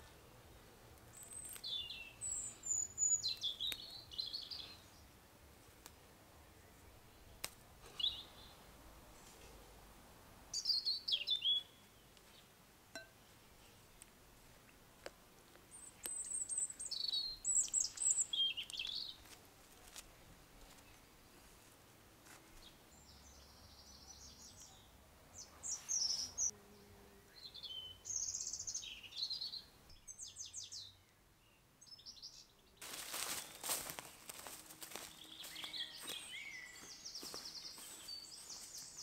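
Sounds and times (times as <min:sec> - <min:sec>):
songbirds chirping: 0:00.0 - 0:39.0
broad rustling noise: 0:32.8 - 0:36.2.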